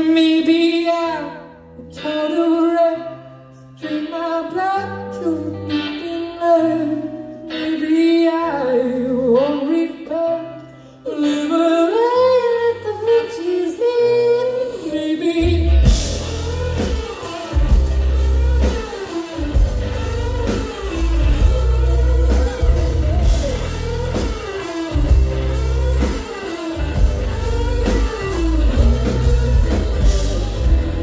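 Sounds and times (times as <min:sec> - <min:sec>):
electric guitar: 0:00.0 - 0:31.0
bass guitar: 0:15.4 - 0:31.0
drum kit: 0:15.4 - 0:31.0.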